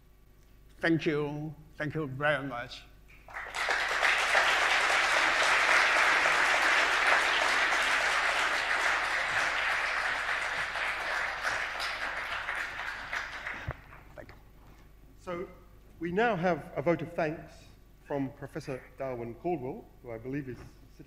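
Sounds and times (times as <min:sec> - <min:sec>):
audience applauding: 0:03.2 - 0:14.2.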